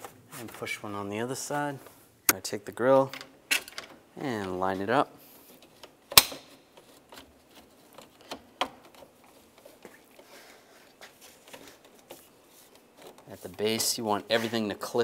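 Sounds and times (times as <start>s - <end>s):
plastic clip snapping: 6.1s - 6.5s.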